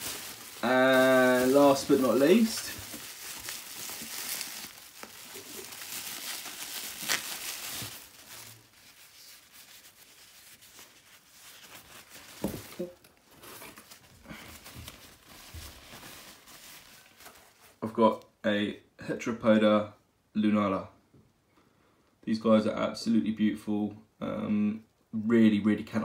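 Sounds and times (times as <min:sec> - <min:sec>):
tissue paper unwrapping: 0:00.0 - 0:17.8
packing material crinkling and rustling: 0:00.0 - 0:17.9.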